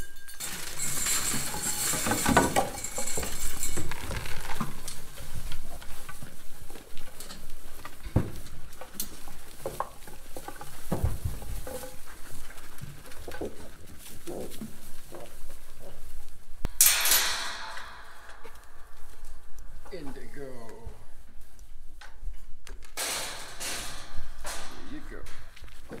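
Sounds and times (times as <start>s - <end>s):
dry hay rustling: 0.4s - 26.0s
knocks against metal hay rack: 16.7s - 18.6s, 23.0s - 26.0s.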